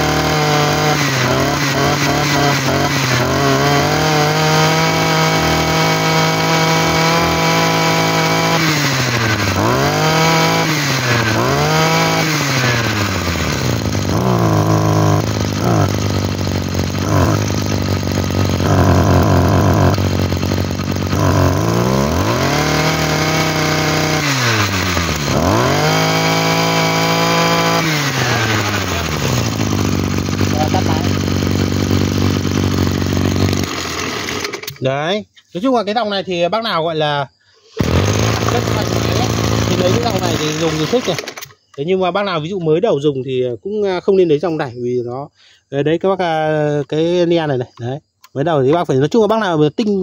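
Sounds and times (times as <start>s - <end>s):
brush cutter engine revving: 0.0s - 34.9s, 37.7s - 41.8s.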